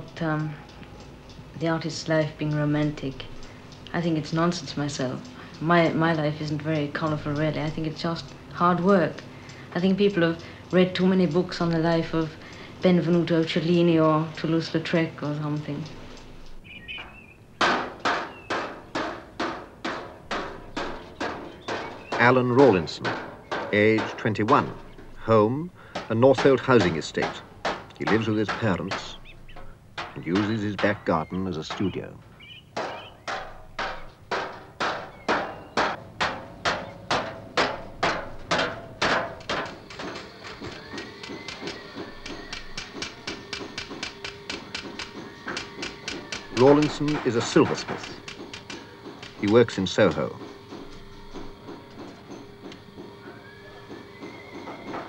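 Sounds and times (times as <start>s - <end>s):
hammer blows ringing: 10.8s - 55.0s.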